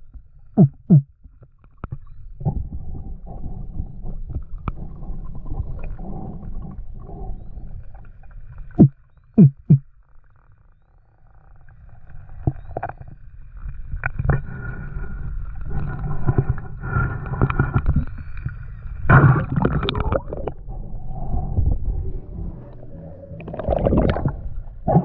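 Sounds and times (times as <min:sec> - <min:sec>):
low underwater rumble: 0:00.0 - 0:25.0
knocks and gurgles: 0:00.6 - 0:01.1, 0:08.8 - 0:09.8, 0:19.1 - 0:20.7.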